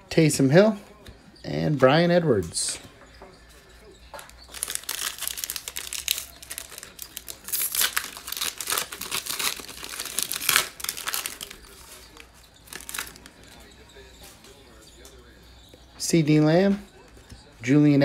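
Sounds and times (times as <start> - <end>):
foil wrapper crinkling and tearing: 4.4 - 13.3.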